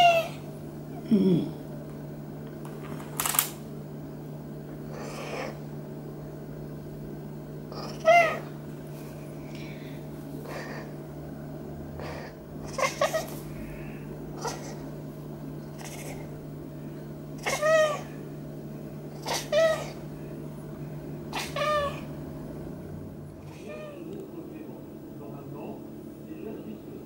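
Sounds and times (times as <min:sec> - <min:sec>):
cat meowing: 0:00.0 - 0:00.4, 0:07.8 - 0:08.5, 0:17.4 - 0:18.1, 0:19.2 - 0:20.0, 0:21.3 - 0:22.1, 0:23.5 - 0:24.1.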